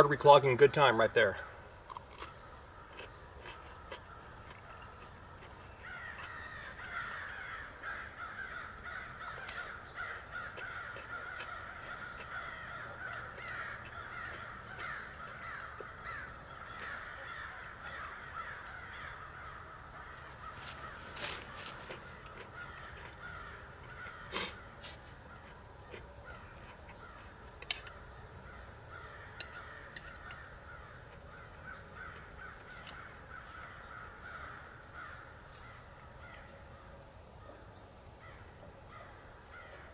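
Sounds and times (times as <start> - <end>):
crows cawing: 0.9 - 39.9.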